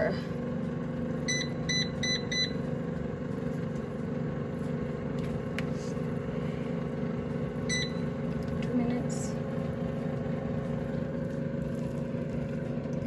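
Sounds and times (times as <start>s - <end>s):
air fryer fan humming: 0.0s - 13.0s
control panel beep: 1.3s - 2.6s, 7.7s - 8.1s.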